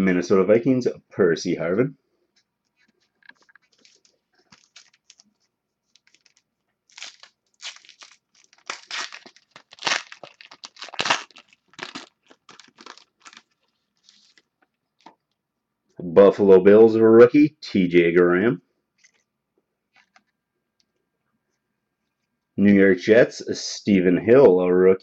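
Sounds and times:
foil wrapper crackling and tearing: 3.7 - 5.3, 5.9 - 15.1.

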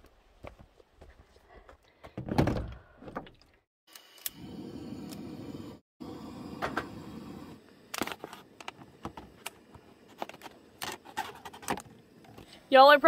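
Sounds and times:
camp stove burner rushing: 3.9 - 12.6.

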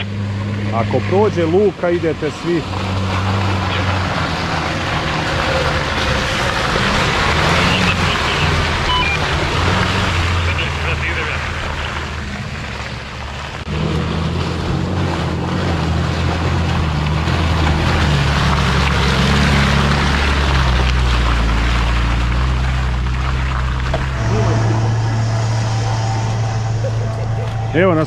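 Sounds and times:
vehicle engine under load: 0.0 - 28.0
steady rushing noise: 22.2 - 28.0.

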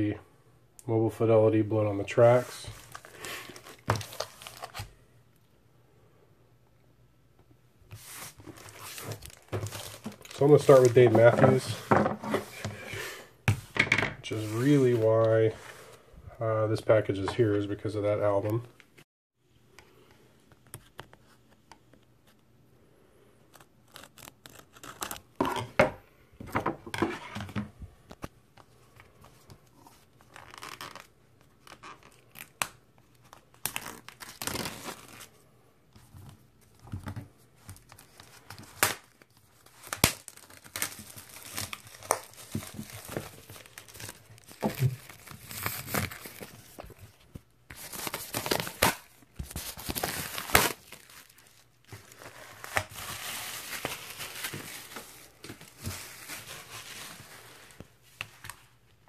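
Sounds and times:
shrink-wrap crinkling and ripping: 2.2 - 5.0, 8.0 - 11.7, 23.5 - 25.7, 29.9 - 35.4, 37.6 - 57.9.

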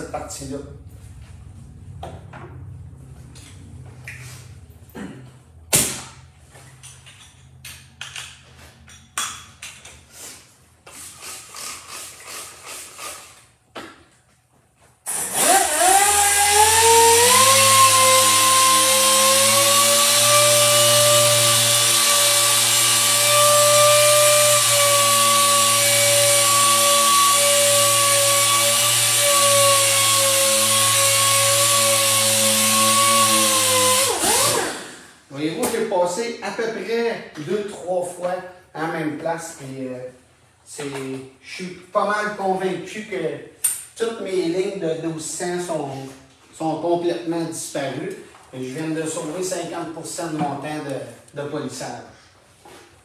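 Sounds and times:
air sander whining: 15.1 - 35.2.

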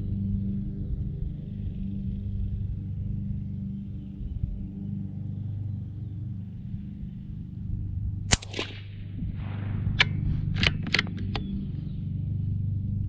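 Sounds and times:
rifle bolt clicking: 8.3 - 8.8, 10.0 - 11.5
rifle shot: 8.3 - 11.4.

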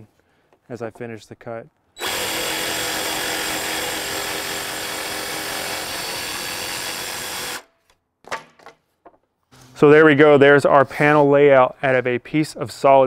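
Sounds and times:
jigsaw sawing through board: 2.0 - 7.7.

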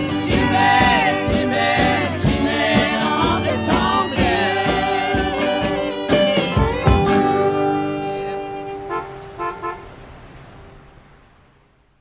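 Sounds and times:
person singing: 0.0 - 8.6.

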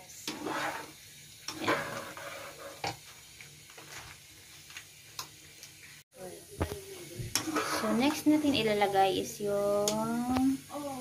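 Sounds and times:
spoon stirring thick stew: 7.0 - 9.0.

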